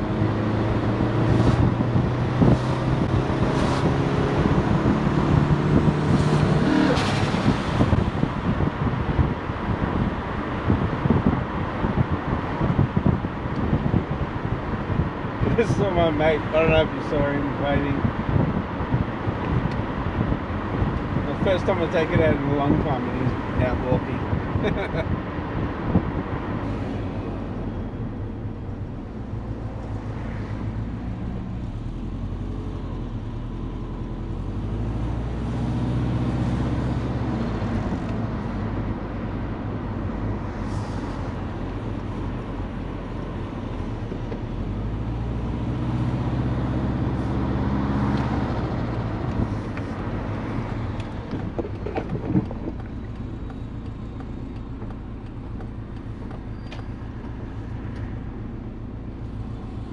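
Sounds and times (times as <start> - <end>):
car engine revving: 0.0 - 8.6
road noise: 0.0 - 59.9.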